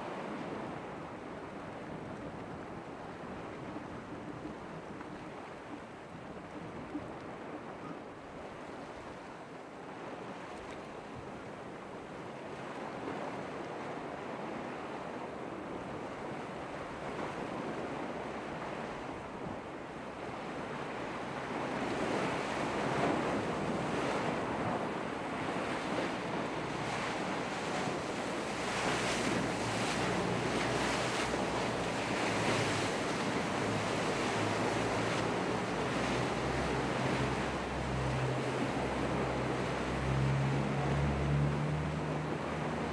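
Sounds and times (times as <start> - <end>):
waves breaking: 0.0 - 42.9
boat engine drone: 20.1 - 42.9.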